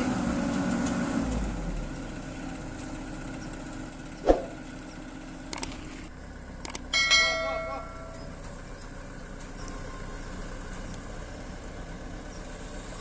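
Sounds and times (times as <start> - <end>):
excavator diesel engine idling: 0.0 - 13.0
small clicks: 5.5 - 5.8, 6.6 - 6.9.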